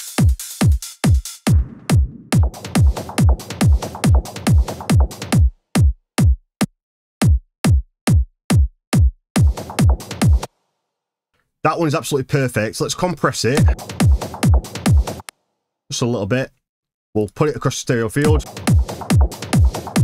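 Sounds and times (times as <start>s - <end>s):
drum loop: 0.0s - 6.4s, 7.2s - 10.5s, 13.5s - 15.3s, 18.2s - 20.0s
percussion loop: 0.0s - 6.4s, 7.2s - 10.5s, 13.6s - 15.3s, 18.2s - 20.0s
electronic kick drum thumps: 0.0s - 10.5s, 13.6s - 15.3s, 18.3s - 20.0s.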